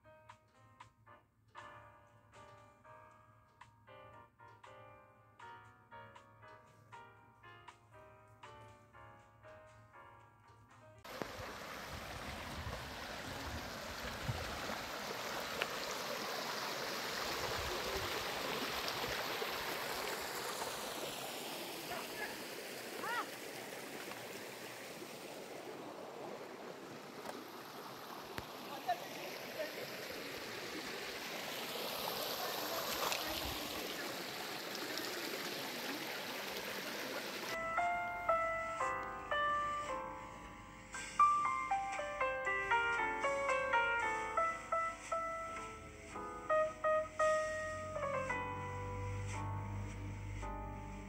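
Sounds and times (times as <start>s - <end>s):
music: 0.0s - 11.1s, 37.6s - 51.0s
river running over stones: 11.1s - 37.6s
stream babbling over pebbles: 11.1s - 37.6s.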